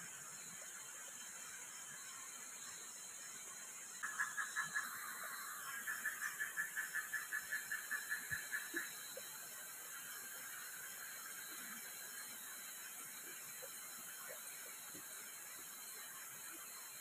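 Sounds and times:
steady high hiss: 0:00.0 - 0:17.0
animal's rhythmic pulsing call: 0:04.0 - 0:16.8.

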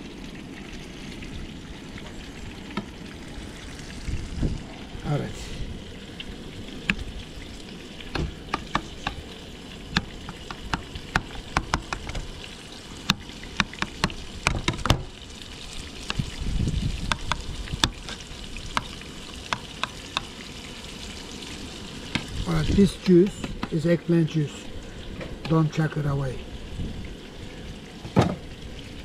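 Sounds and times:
food sizzling with pops: 0:00.0 - 0:04.7, 0:05.8 - 0:23.9.

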